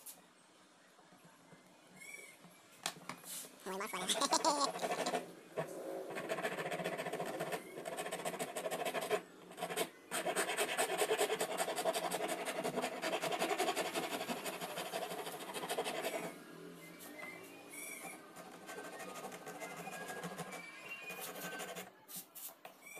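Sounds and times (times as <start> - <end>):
file scraping wood: 4.5 - 5.3, 6.1 - 16.3.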